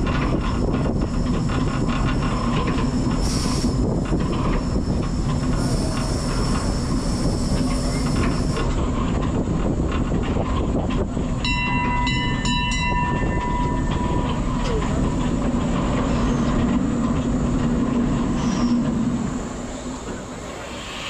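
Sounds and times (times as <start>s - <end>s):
wheels clattering on track: 0.0s - 21.0s
steam hissing: 0.5s - 8.9s, 16.0s - 21.0s
high ringing tone: 11.4s - 14.8s.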